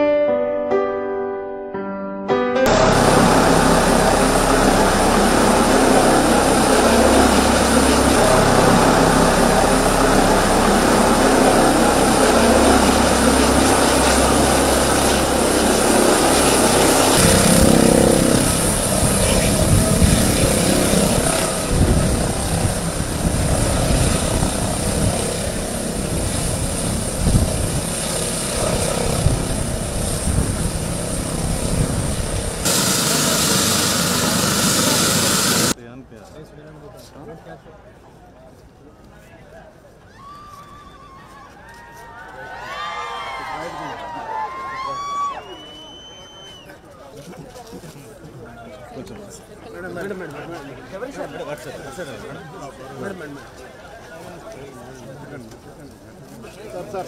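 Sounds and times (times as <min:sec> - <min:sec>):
gusty rumble: 0:02.7 - 0:34.6
helicopter rotor and turbine: 0:02.7 - 0:35.8.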